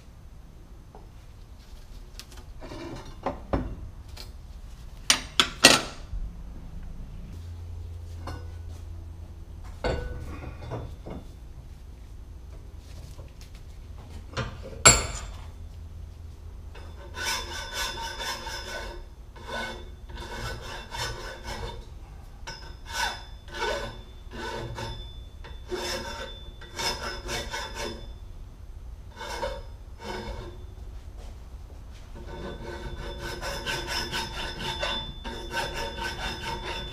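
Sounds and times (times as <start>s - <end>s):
file rasping on metal: 16.8s - 21.9s, 22.5s - 28.1s, 29.1s - 30.6s, 32.2s - 36.9s.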